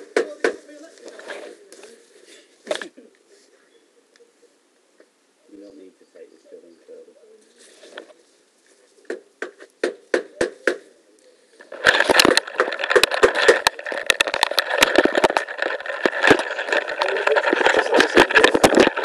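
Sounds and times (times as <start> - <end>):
sharp knocks on camera: 0.0 - 0.6, 9.0 - 10.9, 12.1 - 13.7
camera rubbing crackle: 0.0 - 3.6, 7.4 - 10.1, 10.8 - 19.0.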